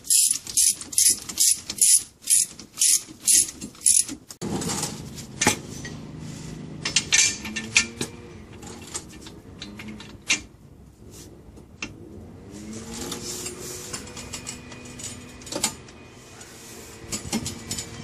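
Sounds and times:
ratchet wrench clicking: 0:00.0 - 0:04.1
metal creaks and scrapes: 0:12.4 - 0:18.0.

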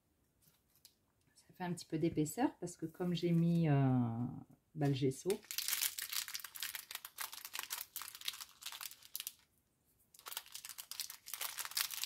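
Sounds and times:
paper crinkling and crackling: 0:04.8 - 0:09.5, 0:10.1 - 0:12.0.

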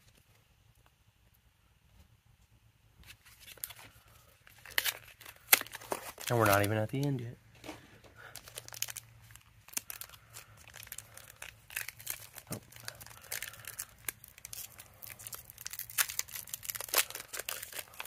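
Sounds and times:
foil wrapper tearing and crinkling: 0:03.1 - 0:07.1, 0:08.2 - 0:18.0.

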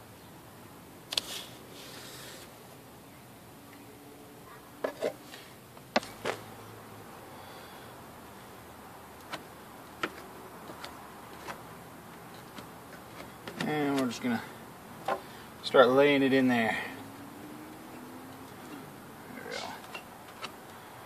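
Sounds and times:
tools clicking and tapping: 0:09.2 - 0:14.1, 0:19.8 - 0:20.8
tape rustling: 0:09.2 - 0:14.2.

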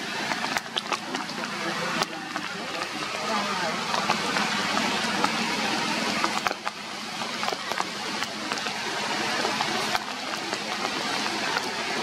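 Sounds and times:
rain on leaves: 0:00.0 - 0:12.0.

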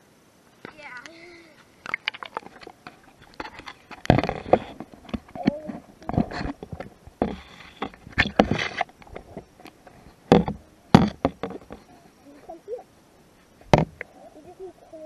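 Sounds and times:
water sloshing: 0:00.6 - 0:11.9
muffled underwater knocks: 0:02.0 - 0:11.8, 0:13.7 - 0:14.0.

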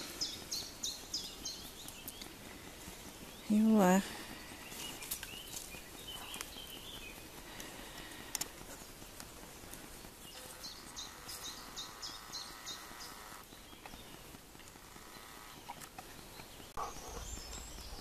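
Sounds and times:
footsteps and rustles on path: 0:00.0 - 0:18.0
dogs breathing: 0:02.3 - 0:10.6, 0:15.6 - 0:18.0.

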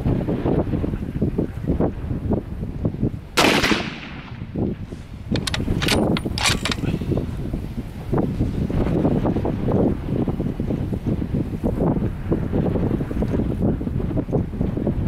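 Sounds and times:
wind noise on microphone: 0:00.0 - 0:15.0
rifle shot with ringing decay: 0:03.4 - 0:04.6
rifle bolt metallic clicks: 0:05.3 - 0:06.9.

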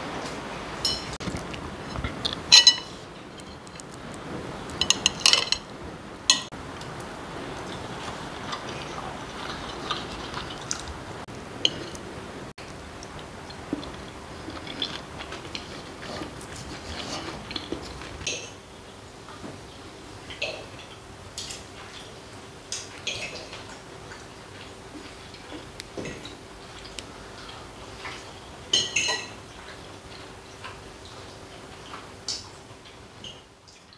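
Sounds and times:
cutlery clinking on plates: 0:00.8 - 0:01.2, 0:01.9 - 0:03.9, 0:04.8 - 0:05.7, 0:06.3 - 0:06.5, 0:28.7 - 0:29.4.

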